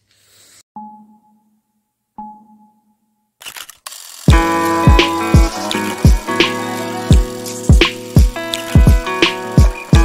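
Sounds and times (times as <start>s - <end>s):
electronic beat music: 4.3s - 10.0s
held synth chords: 4.3s - 10.0s.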